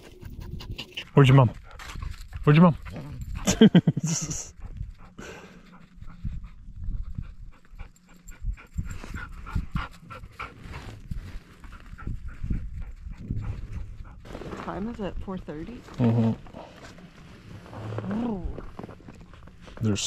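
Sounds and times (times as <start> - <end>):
dog panting: 0.0 - 14.3.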